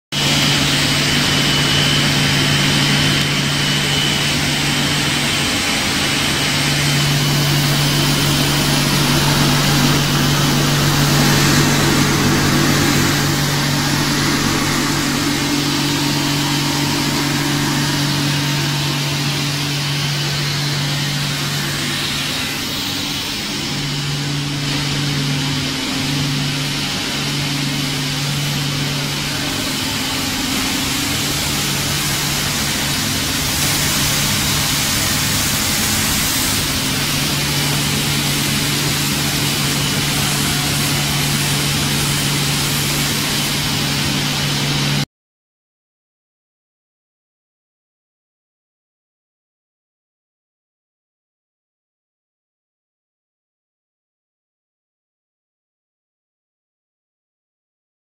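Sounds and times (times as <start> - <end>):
continuous mechanical rush: 0.1 - 45.0
low motor hum: 0.2 - 45.0.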